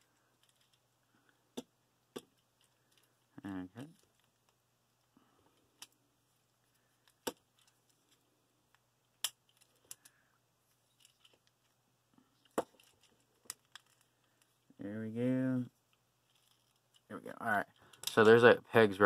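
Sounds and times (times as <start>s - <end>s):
faint fiddling with plastic: 0.0s - 18.4s
plastic toy parts clicking: 12.4s - 14.5s, 17.8s - 18.3s.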